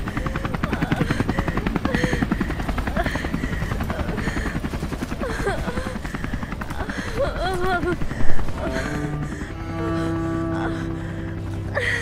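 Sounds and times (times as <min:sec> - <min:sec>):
helicopter rotor chopping: 0:00.0 - 0:12.0
woman crying and wailing: 0:00.0 - 0:12.0.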